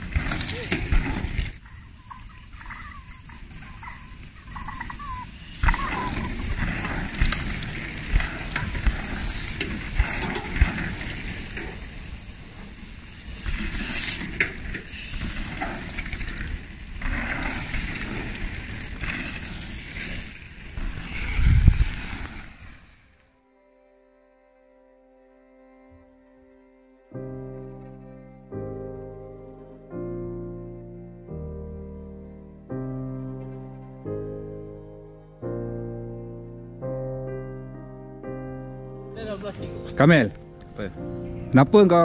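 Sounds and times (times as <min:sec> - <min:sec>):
bike tyres rolling on dirt: 0:00.0 - 0:23.3.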